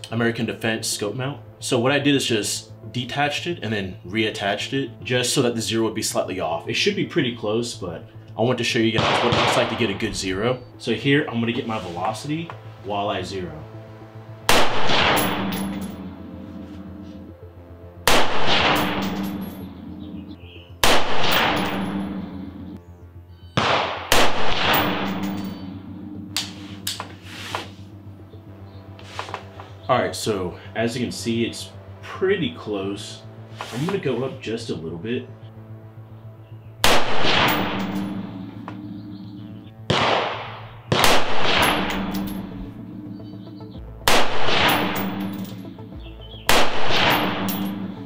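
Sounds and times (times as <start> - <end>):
rifle shots: 9.0 - 10.0, 14.5 - 15.8, 18.1 - 19.6, 20.8 - 22.2, 23.6 - 25.6, 36.8 - 38.3, 39.9 - 42.4, 44.1 - 45.6, 46.5 - 48.0.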